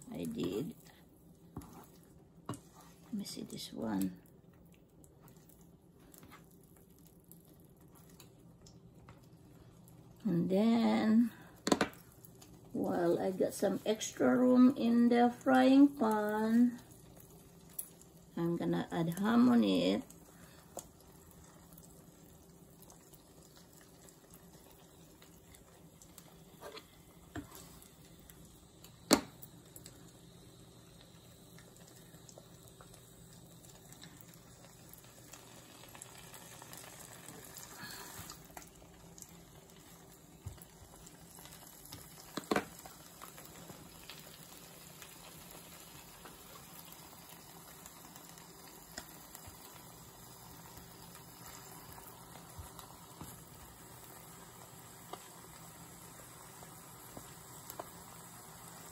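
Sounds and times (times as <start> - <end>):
eggs and ham sizzling in pan: 0.0 - 58.9.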